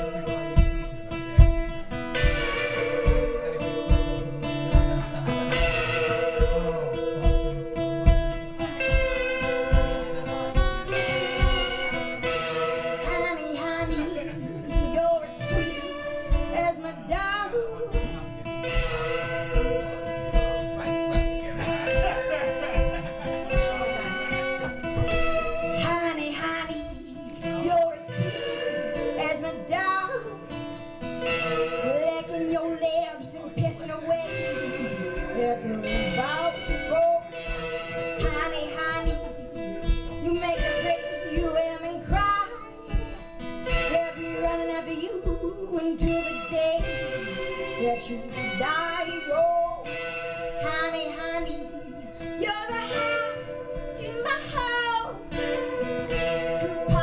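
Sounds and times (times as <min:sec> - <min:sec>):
woman singing: 0:00.0 - 0:21.6, 0:23.2 - 0:57.0
steady low beat: 0:00.0 - 0:31.8
acoustic guitar: 0:00.0 - 0:57.0
electric guitar: 0:00.0 - 0:57.0.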